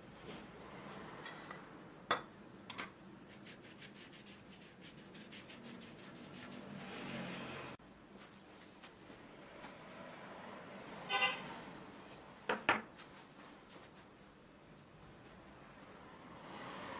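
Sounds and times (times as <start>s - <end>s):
pastry brush rubbing dough: 3.2s - 7.8s.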